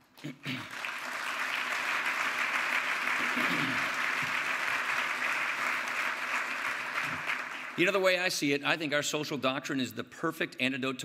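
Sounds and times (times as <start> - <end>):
audience applauding: 0.5 - 8.0.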